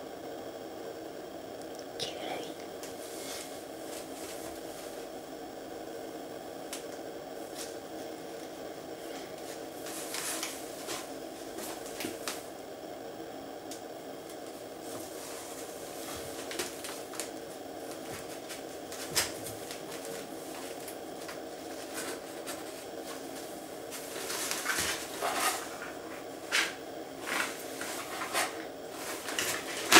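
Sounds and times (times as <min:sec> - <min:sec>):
steady background hum: 0:00.0 - 0:29.9
cat rustling in cardboard box: 0:03.0 - 0:05.1, 0:09.3 - 0:12.4, 0:18.0 - 0:29.9.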